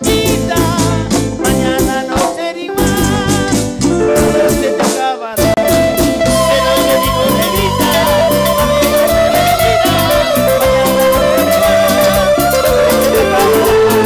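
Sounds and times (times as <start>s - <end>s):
live band through pa: 0.0s - 14.0s
singers' wavering melody: 4.0s - 14.0s.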